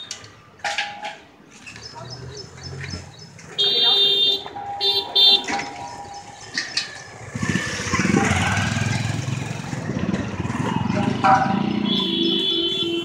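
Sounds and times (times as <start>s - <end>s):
motorcycle riding past: 7.2s - 12.5s.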